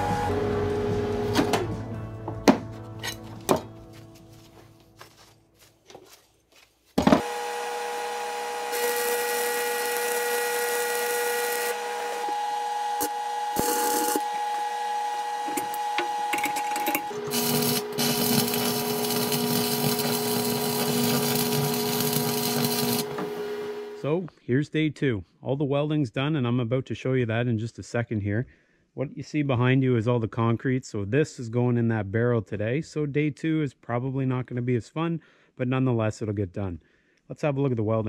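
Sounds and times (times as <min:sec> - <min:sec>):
crackling welding arc: 0:08.7 - 0:11.7, 0:17.3 - 0:23.1.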